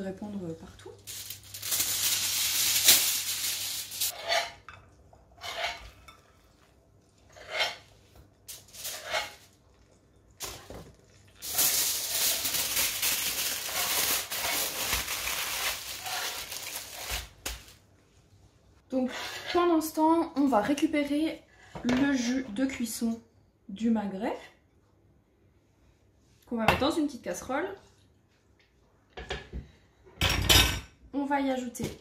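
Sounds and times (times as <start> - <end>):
aluminium foil crinkling: 0.8 - 4.2, 8.5 - 9.6, 10.4 - 17.8
spatula and knife scraping: 4.1 - 6.5, 7.2 - 9.6, 18.9 - 19.8.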